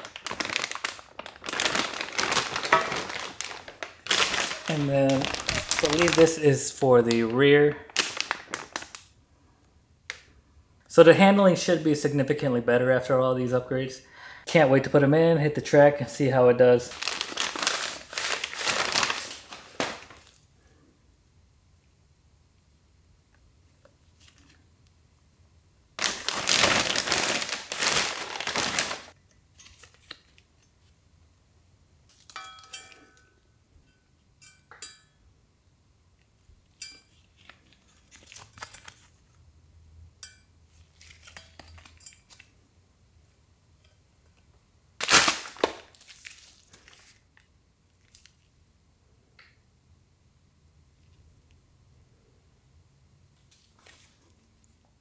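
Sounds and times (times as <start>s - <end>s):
plastic bags crinkling: 0.0s - 9.1s, 16.9s - 20.4s, 26.0s - 30.4s, 45.0s - 47.4s
metal bars knocking and clinking: 32.3s - 33.3s.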